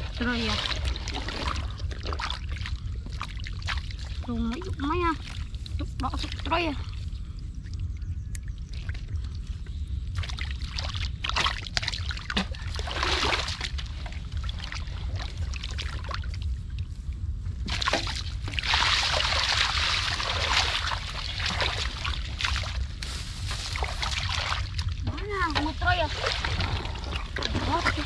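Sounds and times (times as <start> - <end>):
steady low rumble: 0.0 - 28.0
hands splashing muddy water: 17.7 - 24.8.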